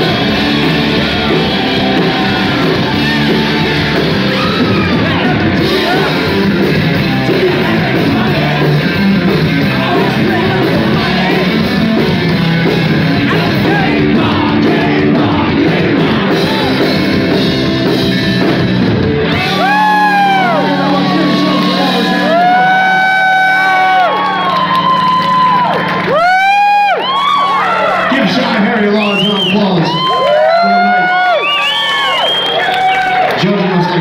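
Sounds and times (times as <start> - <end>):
singer singing and yelling: 0.0 - 24.2
live rock band playing: 0.0 - 31.1.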